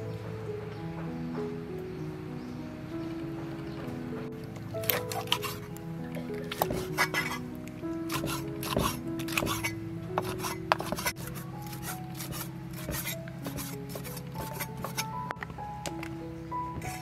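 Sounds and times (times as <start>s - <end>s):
background music with held notes: 0.0s - 17.0s
cleaver chopping on wooden board: 4.8s - 5.7s, 6.5s - 7.4s, 8.1s - 15.1s.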